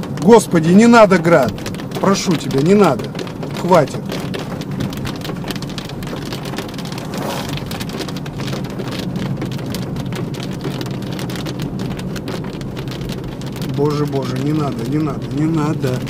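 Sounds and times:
rain drops hitting car: 0.0s - 16.0s
road noise: 0.0s - 16.0s.

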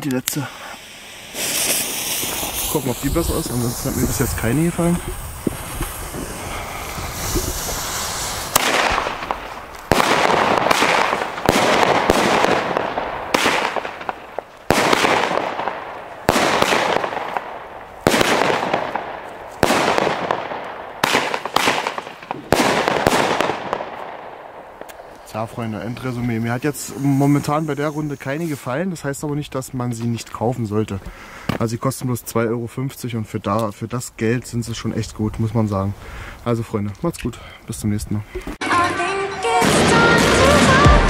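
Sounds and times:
firework fuse hissing: 0.2s - 20.0s, 24.7s - 29.2s
firework shots banging and crackling: 0.2s - 29.0s, 39.5s - 41.0s.

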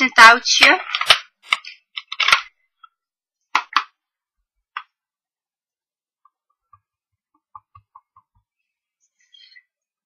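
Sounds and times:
plastic case clacks: 0.8s - 2.5s.

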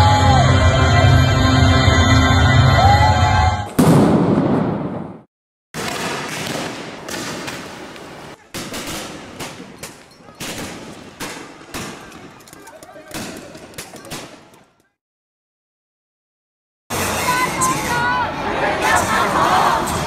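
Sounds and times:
music with singing: 0.0s - 3.7s
loud bang: 3.7s - 7.4s
street clash noise: 3.7s - 15.0s
sharp cracks of gunfire: 5.8s - 12.4s.

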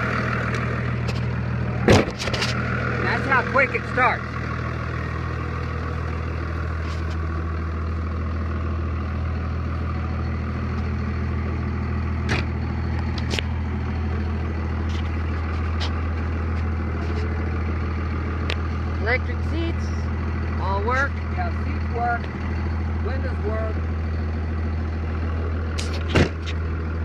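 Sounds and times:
diesel engine idling: 0.0s - 27.0s
clicks and knocks in truck cab: 1.0s - 2.5s, 12.3s - 13.5s, 25.8s - 26.6s.

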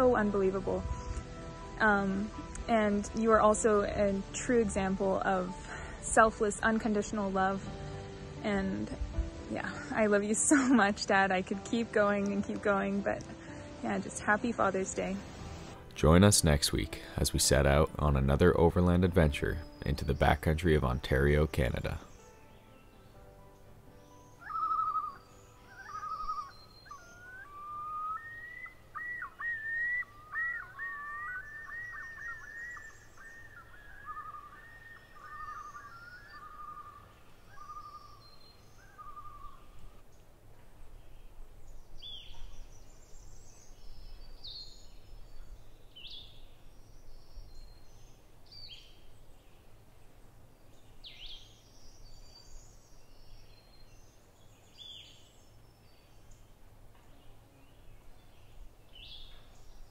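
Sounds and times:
faint low background noise: 0.0s - 59.9s
high bird chirps: 24.0s - 39.9s
bird whistled notes: 24.3s - 39.6s.

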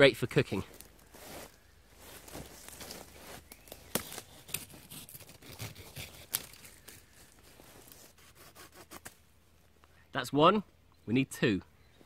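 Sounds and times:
pruning saw cutting wood: 3.8s - 9.1s.

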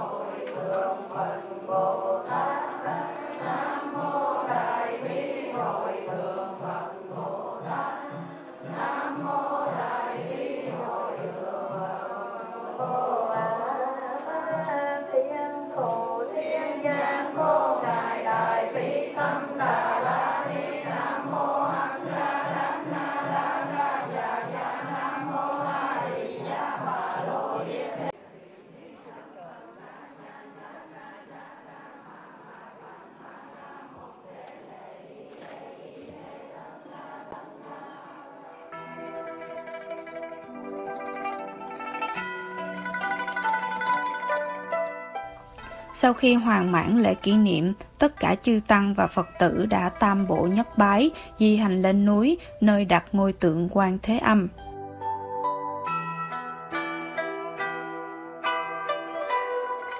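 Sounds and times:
people chanting in unison: 0.0s - 38.9s.

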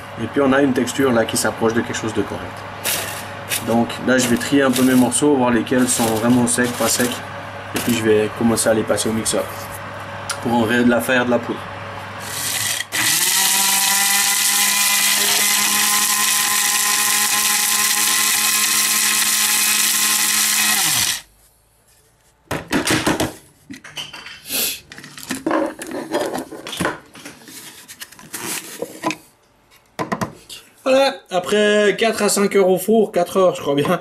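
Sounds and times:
electric chopper motor whining: 12.2s - 21.3s.

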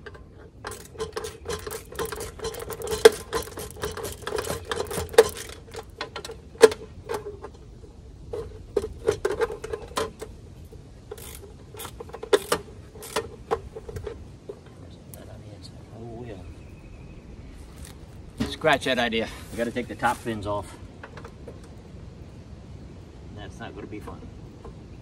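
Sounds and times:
wrench clicking on bolts: 0.0s - 7.2s, 11.1s - 14.1s.

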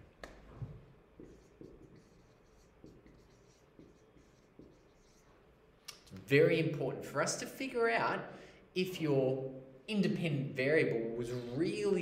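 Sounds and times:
marker writing on whiteboard: 0.3s - 5.4s.

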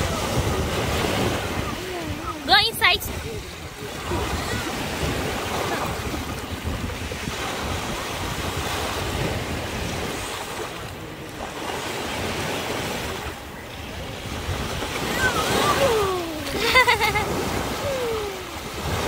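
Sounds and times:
small waves breaking: 0.0s - 19.0s
wind buffeting microphone: 0.0s - 19.0s.

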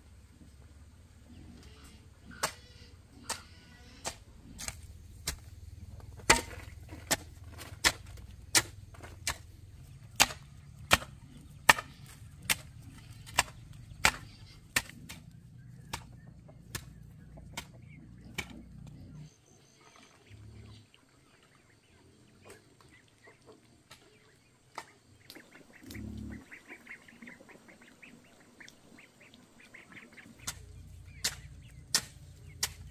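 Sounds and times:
rhythmic blade chopping: 30.4s - 32.9s.

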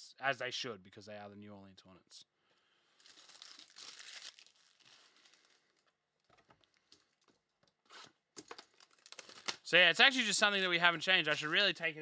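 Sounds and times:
plastic shrink wrap crinkling: 3.0s - 9.7s.

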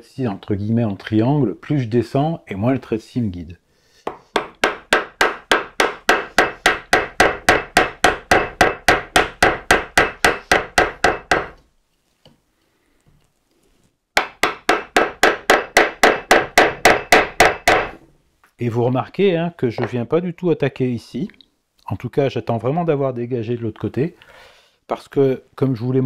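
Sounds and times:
mallet striking wood chisel: 4.1s - 11.6s, 14.2s - 18.0s.

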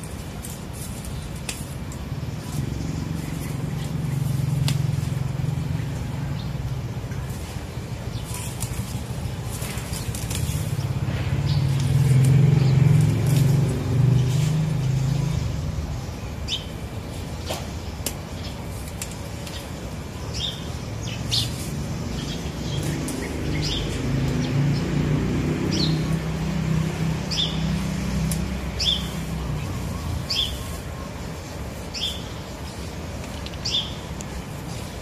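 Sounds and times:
bird chirps: 28.7s - 32.9s.

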